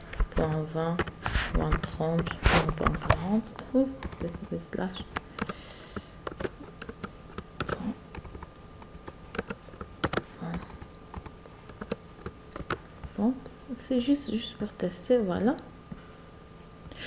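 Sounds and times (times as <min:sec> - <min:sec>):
computer keyboard clicks: 0:04.0 - 0:12.8.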